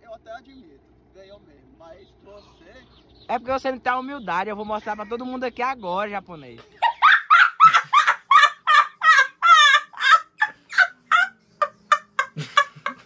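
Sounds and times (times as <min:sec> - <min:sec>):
boy laughing hysterically: 0:06.8 - 0:13.0.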